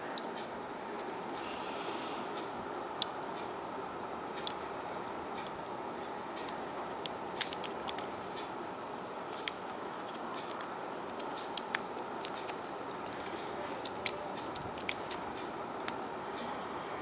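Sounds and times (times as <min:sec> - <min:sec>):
steady low hiss: 0:00.0 - 0:17.0
plastic parts clicking: 0:01.0 - 0:01.4, 0:06.3 - 0:08.1, 0:09.3 - 0:16.1.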